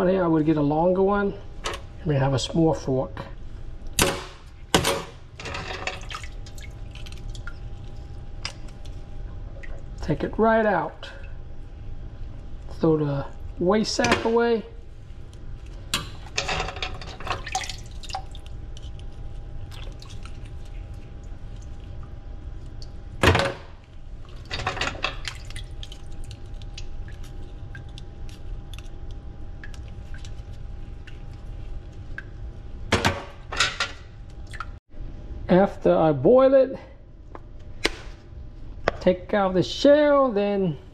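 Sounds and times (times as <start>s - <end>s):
faint steady hum: 0.0s - 40.9s
water dripping and splashing: 5.8s - 10.1s, 17.2s - 23.2s, 23.8s - 32.5s, 34.2s - 34.8s.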